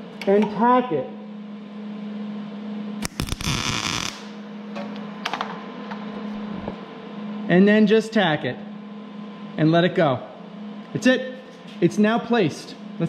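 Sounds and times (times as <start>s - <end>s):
steady hum: 0.0s - 13.0s
welding arc crackling hiss: 3.0s - 4.4s.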